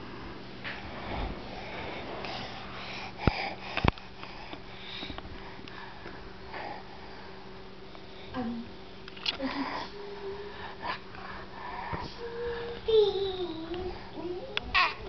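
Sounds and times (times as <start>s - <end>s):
steady low hum: 0.0s - 15.0s
toddler breathing and sniffing: 1.4s - 7.4s.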